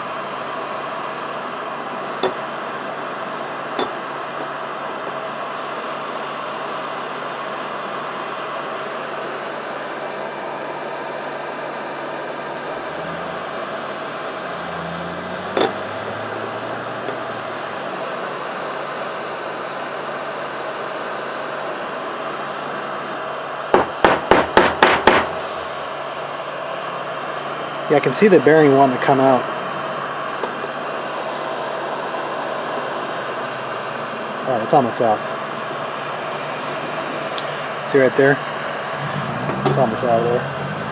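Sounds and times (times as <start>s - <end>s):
heat gun blowing hot air: 22.6s - 26.0s.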